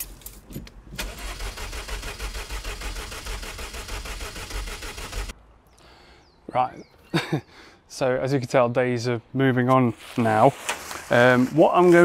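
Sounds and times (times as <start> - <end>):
engine cranking by starter motor: 1.0 - 5.3.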